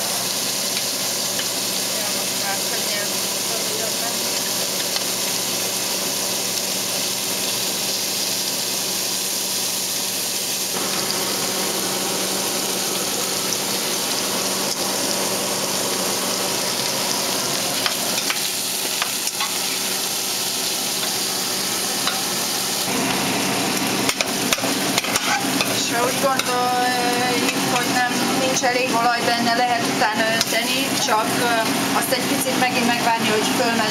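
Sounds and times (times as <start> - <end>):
meat sizzling in hot oil: 0.0 - 33.9
metal tongs scraping pot: 24.0 - 28.1.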